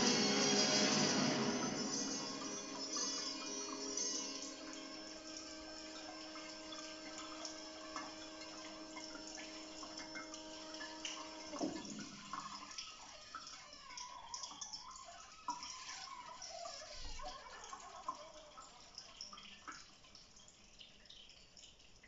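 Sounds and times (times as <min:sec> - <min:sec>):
falling whine: 0:00.0 - 0:12.7
mechanism humming: 0:00.0 - 0:19.7
water trickling and dripping: 0:00.0 - 0:22.0.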